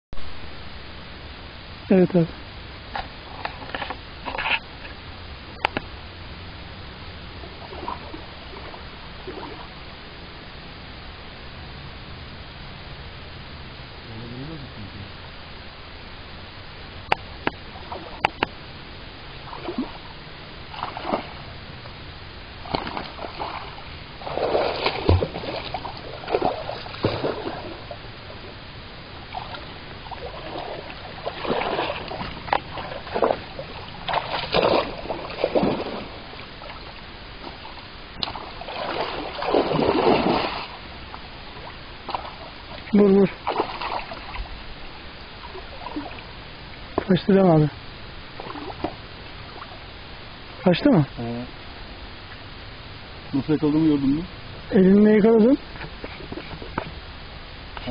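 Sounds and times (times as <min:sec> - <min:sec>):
fish thrashing in water: 0:20.7 - 0:21.5, 0:22.6 - 0:28.0, 0:29.3 - 0:40.9, 0:43.4 - 0:44.5.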